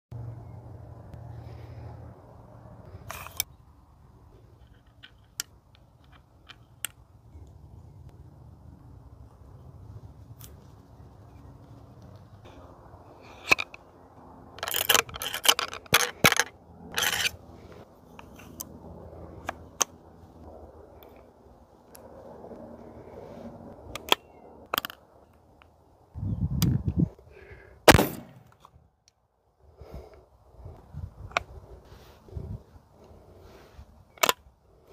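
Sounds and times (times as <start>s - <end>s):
wind rumble on microphone: 26.1s - 27.2s, 29.8s - 32.8s
pistol gunshot with echo: 27.9s - 28.4s.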